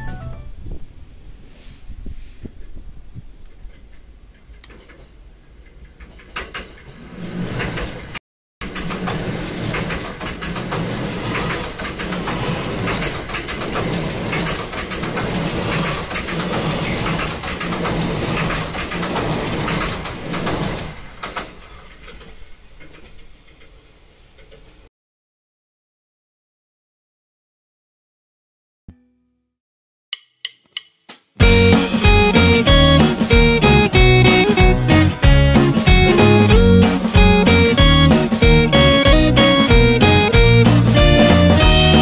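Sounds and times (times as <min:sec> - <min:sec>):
train wheel clatter: 0:03.5 - 0:24.9, 0:31.4 - 0:42.0
train rumbling overhead: 0:04.4 - 0:24.0, 0:31.4 - 0:42.0.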